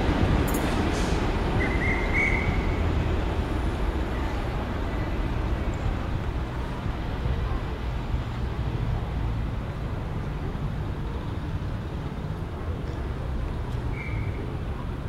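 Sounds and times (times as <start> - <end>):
station background noise: 0.0 - 13.8
train rumbling: 0.0 - 15.0
short high whistle: 1.6 - 2.8, 13.9 - 14.4.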